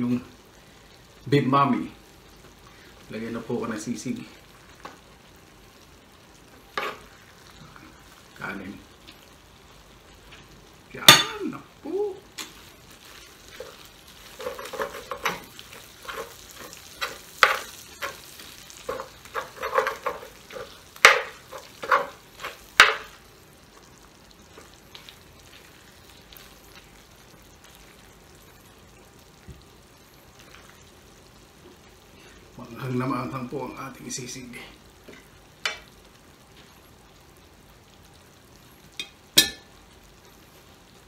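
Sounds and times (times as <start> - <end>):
meat sizzling in a pan: 0.0 - 41.0
metal spoon scraping a pan: 6.7 - 7.1, 13.6 - 23.1.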